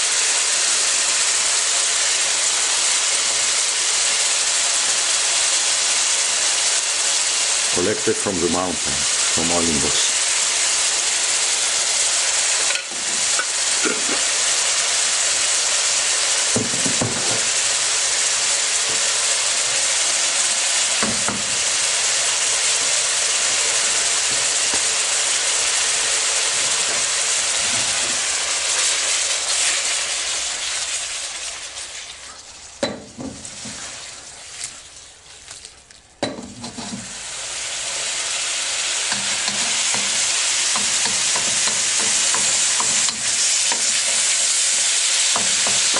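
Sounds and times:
meat sizzling in oil: 0:00.0 - 0:35.5, 0:36.3 - 0:45.9
wooden spatula knocking and scraping: 0:36.2 - 0:37.1, 0:39.2 - 0:44.1.

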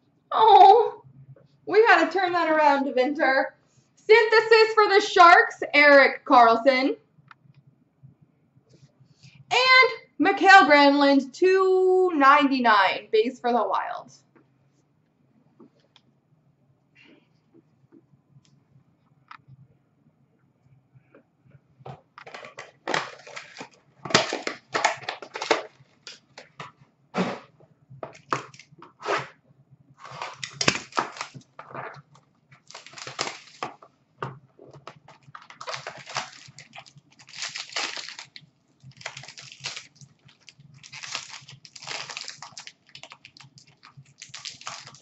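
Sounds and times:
plastic and foil wrapper crinkling: 0:22.2 - 0:26.7, 0:28.1 - 0:28.8, 0:30.0 - 0:33.9, 0:34.6 - 0:45.0.

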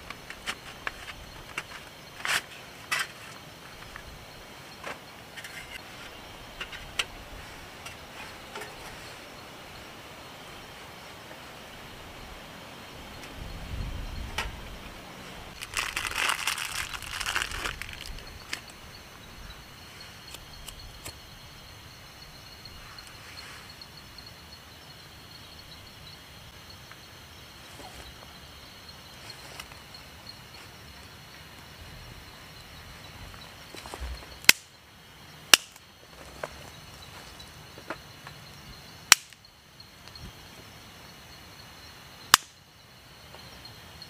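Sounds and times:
rustling noise: 0:00.0 - 0:09.4, 0:13.2 - 0:18.8, 0:32.8 - 0:34.4
sharp loud clicks: 0:35.5 - 0:35.8, 0:39.1 - 0:39.4, 0:42.3 - 0:42.6.

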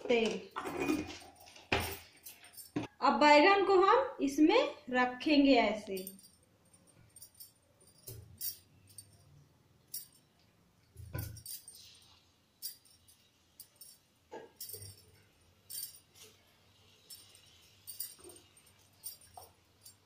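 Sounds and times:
bangles clinking: 0:00.5 - 0:02.9, 0:05.9 - 0:10.4, 0:11.0 - 0:20.0.

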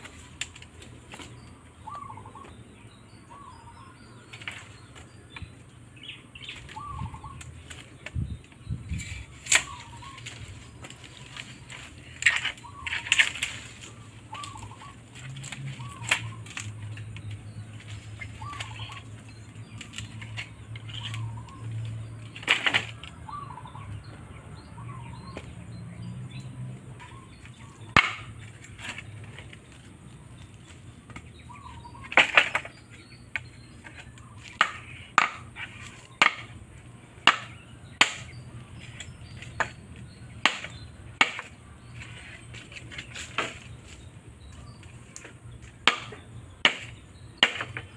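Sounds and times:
bamboo being chopped: 0:06.4 - 0:23.2, 0:27.0 - 0:29.8, 0:30.5 - 0:36.6, 0:37.2 - 0:47.9.

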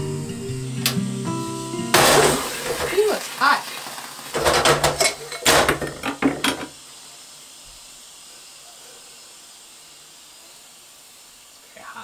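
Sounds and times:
faint background hiss: 0:00.0 - 0:12.0
hard objects clattering: 0:02.0 - 0:03.1, 0:04.3 - 0:06.7.

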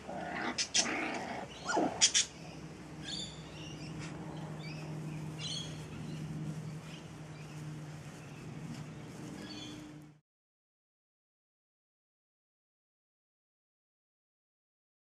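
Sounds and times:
birds chirping: 0:00.0 - 0:10.2
steady low hum: 0:00.0 - 0:10.2
puppy yelping: 0:00.2 - 0:02.3.

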